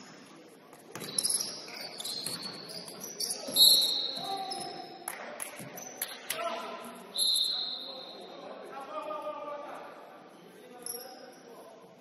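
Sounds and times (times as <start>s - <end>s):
shoes squeaking on court: 0.0s - 5.0s, 5.6s - 6.2s
basketball bouncing: 0.8s - 1.3s.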